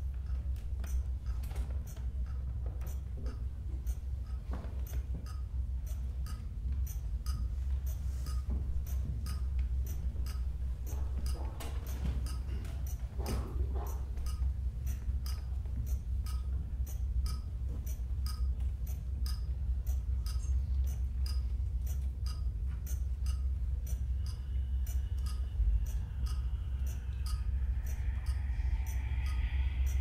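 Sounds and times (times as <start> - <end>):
faint wavering high tones: 24.1 - 30.0.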